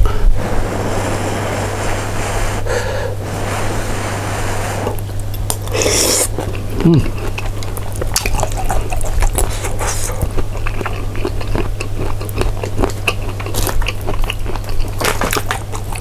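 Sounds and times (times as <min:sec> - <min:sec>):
person chewing crunchy food: 0:05.0 - 0:16.0.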